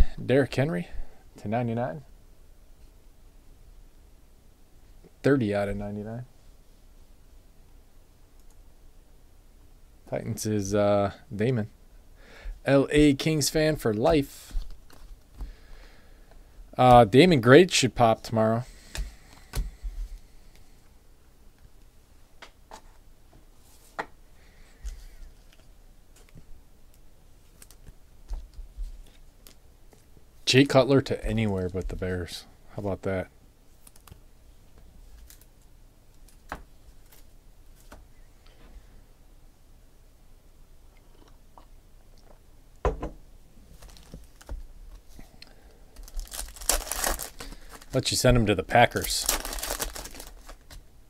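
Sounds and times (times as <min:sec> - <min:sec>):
foil packs clicking and rustling: 0:43.8 - 0:44.6, 0:46.0 - 0:50.8.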